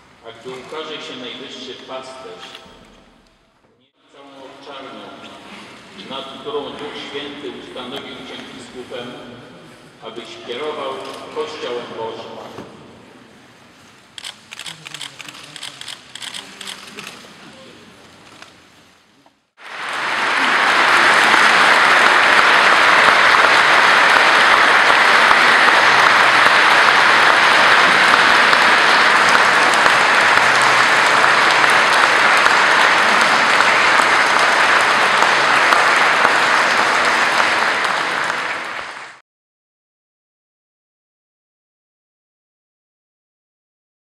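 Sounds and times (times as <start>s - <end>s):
congregation applauding: 14.2s - 16.7s, 19.6s - 39.2s.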